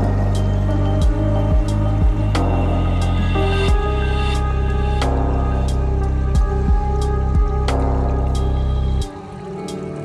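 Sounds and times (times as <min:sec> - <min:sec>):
electronic music: 0:00.0 - 0:10.0.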